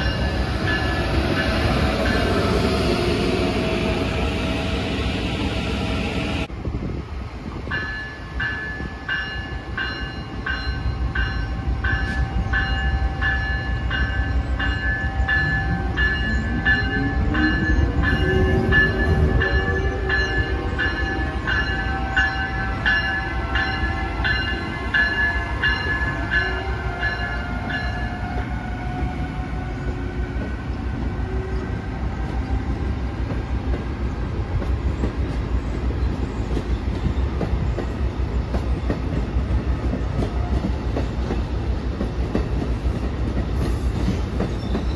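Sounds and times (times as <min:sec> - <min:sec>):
locomotive bell ringing: 0:07.7 - 0:28.3
train wheels clicking over rail joints: 0:34.5 - 0:44.9.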